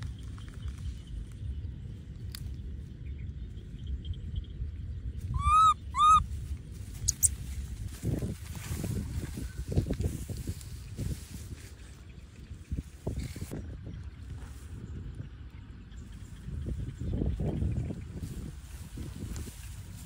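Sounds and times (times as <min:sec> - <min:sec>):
steady low rumble: 0:00.0 - 0:20.0
baby monkey crying: 0:05.3 - 0:06.2.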